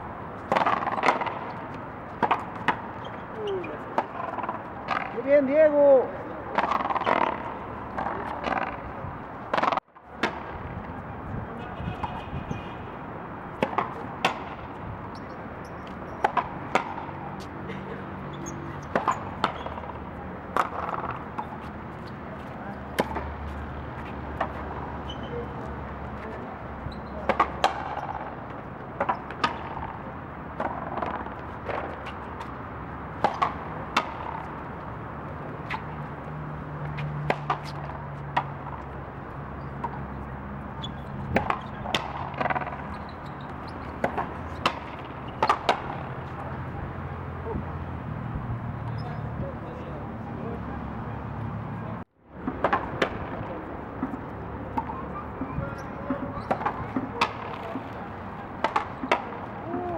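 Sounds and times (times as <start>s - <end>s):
ball cracking off racquets: 0.4s - 5.2s, 6.5s - 8.8s, 9.5s - 10.5s, 18.4s - 22.2s, 22.9s - 24.8s, 29.0s - 34.8s, 41.3s - 46.1s, 56.1s - 59.9s
ball hitting court wall: 0.5s - 1.6s, 2.2s - 5.3s, 6.5s - 8.8s, 9.5s - 10.5s, 13.6s - 14.7s, 16.1s - 17.2s, 18.4s - 21.7s, 22.9s - 23.4s, 27.1s - 28.3s, 33.2s - 34.6s, 41.3s - 43.0s, 43.6s - 46.1s, 56.1s - 58.0s, 58.6s - 59.9s.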